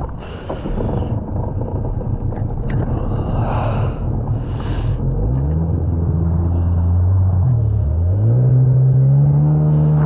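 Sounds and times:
wind buffeting microphone: 0.0s - 7.8s.

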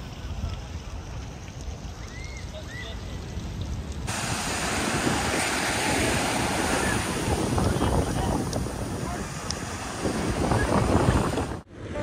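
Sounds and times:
surf washing onto beach: 0.0s - 12.0s
wind buffeting microphone: 3.1s - 11.7s.

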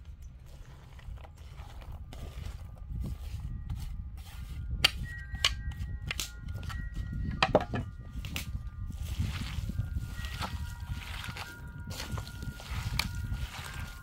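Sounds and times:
low wind rumble: 0.0s - 14.0s
wooden dish knocking on bowl: 7.4s - 7.9s.

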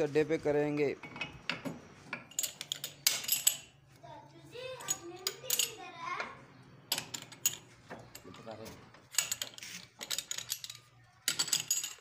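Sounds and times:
child's voice: 4.0s - 6.5s.

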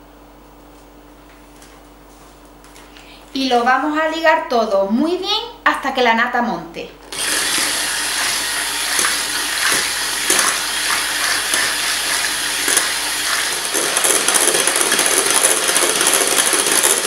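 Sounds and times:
electric hand mixer motor: 7.1s - 17.0s.

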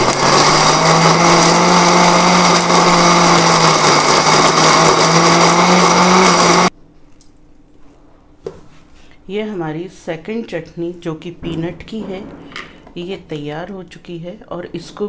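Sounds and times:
mixer grinder running: 0.0s - 6.7s.

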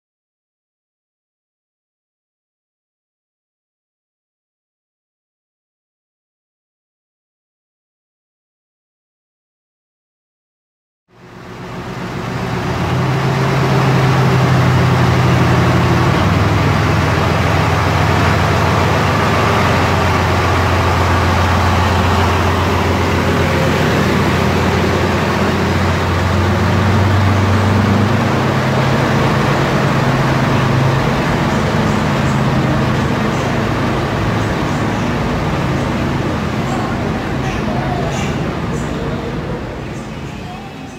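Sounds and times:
diesel locomotive engine running hard: 11.1s - 40.9s.

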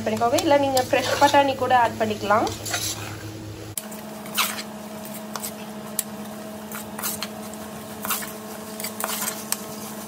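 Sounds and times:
metal ladle scraping a pot: 0.7s - 1.5s, 2.5s - 3.2s.

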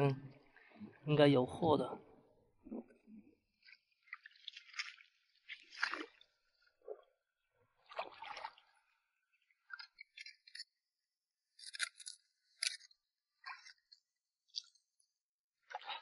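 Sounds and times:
water sloshing: 2.6s - 10.7s.

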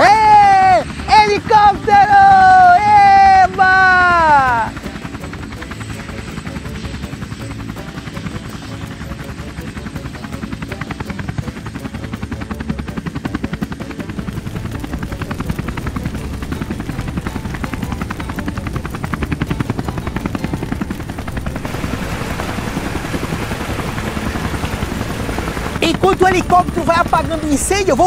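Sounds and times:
helicopter rotor chopping: 0.0s - 28.0s.

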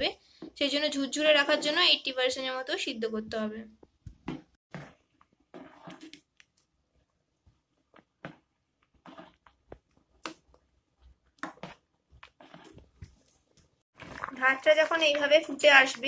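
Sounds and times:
rice boiling: 4.7s - 13.2s, 13.9s - 15.3s.

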